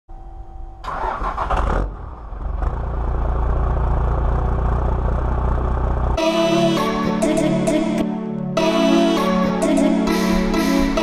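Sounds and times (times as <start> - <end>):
diesel engine idling: 0.9 - 6.7.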